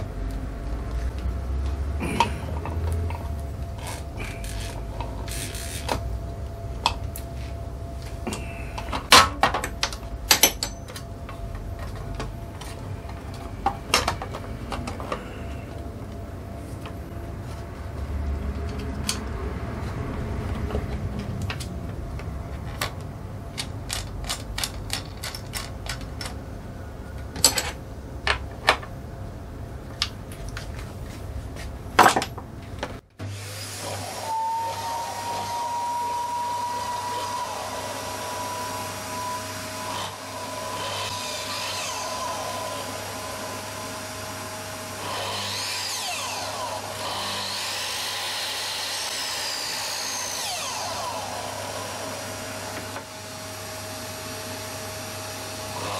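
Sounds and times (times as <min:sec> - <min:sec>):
machine hum with high whine: 0:00.0 - 0:55.9.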